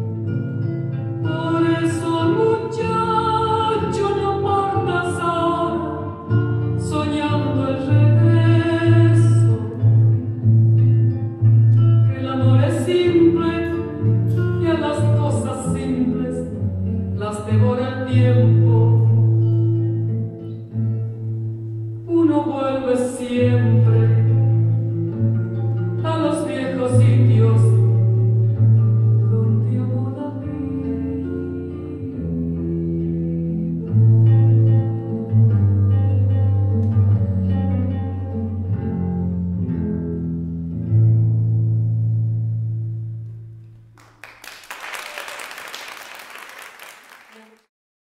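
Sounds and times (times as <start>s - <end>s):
slow song with bass: 0.0s - 44.0s
audience applause: 44.0s - 47.7s.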